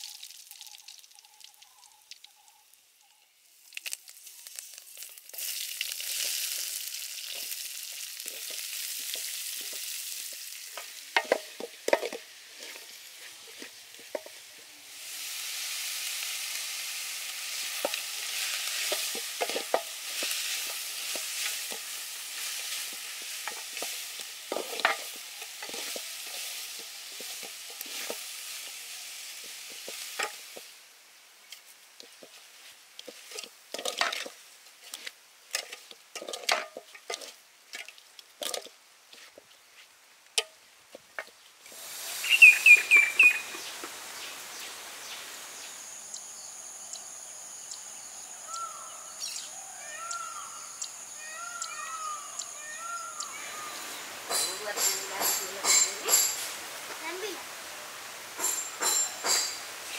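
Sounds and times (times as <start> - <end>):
oil sizzling in a pot: 0.0 - 59.9
spoon scraping a pot: 18.8 - 28.2.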